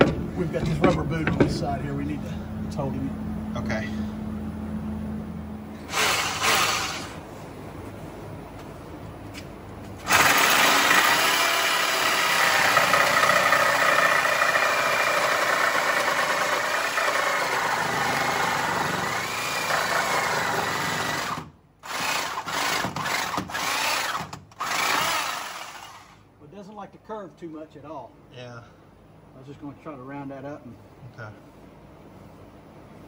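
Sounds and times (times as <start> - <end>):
handheld power tool running: 5.9 - 7.2, 10.0 - 26.2.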